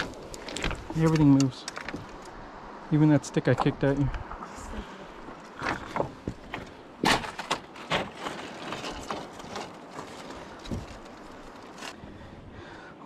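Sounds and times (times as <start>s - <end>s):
footsteps on rock: 0.0s - 2.1s, 5.2s - 11.9s.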